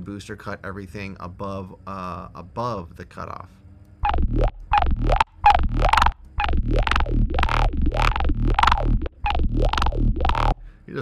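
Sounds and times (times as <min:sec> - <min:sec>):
wobbling synth bass loop: 0:04.0 - 0:10.7.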